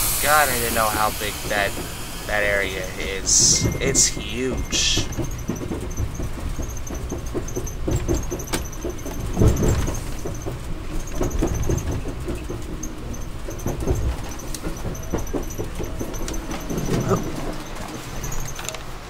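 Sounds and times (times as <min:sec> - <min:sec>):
train wheels rumbling on rail: 0:00.0 - 0:19.0
faint high squeaks: 0:01.2 - 0:18.8.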